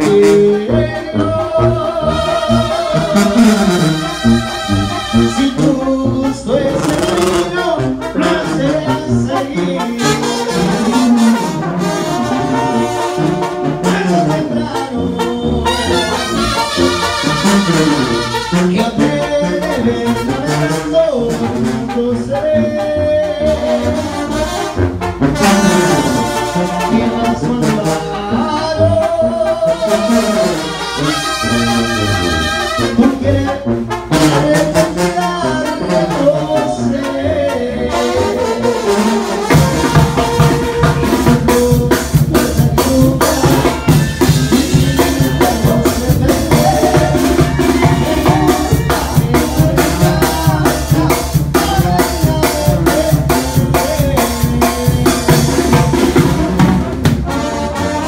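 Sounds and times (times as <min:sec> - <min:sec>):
tuba and trombones: 0:00.0 - 0:58.0
drum kit with cymbals: 0:39.4 - 0:57.4.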